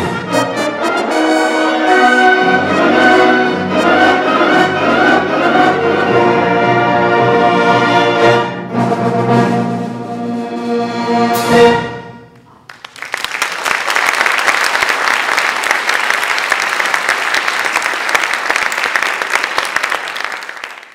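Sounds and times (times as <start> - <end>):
audience applauding: 12.6 - 20.9.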